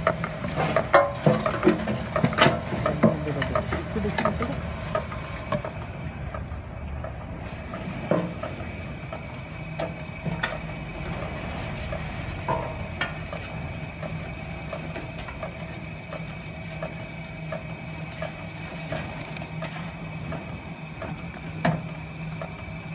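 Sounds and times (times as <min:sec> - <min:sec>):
machine humming: 0:00.0 - 0:22.9.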